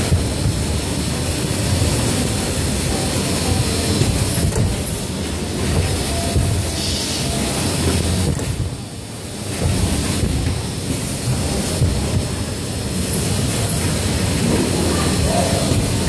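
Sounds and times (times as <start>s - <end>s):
filling machine rumbling: 0.0s - 16.0s.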